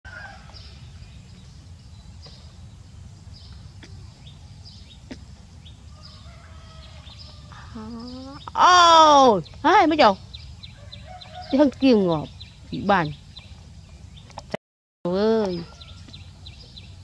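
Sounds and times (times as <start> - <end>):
low steady rumble: 0.1 - 17.0
faint bird chirps: 3.3 - 14.4
distant chicken calls: 3.5 - 8.8, 10.5 - 12.1.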